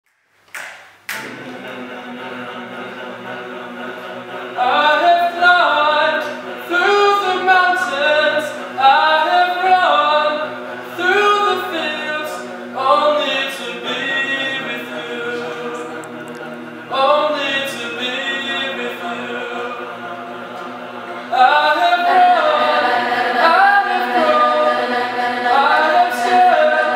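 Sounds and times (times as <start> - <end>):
choir singing a cappella: 1.1 - 26.9.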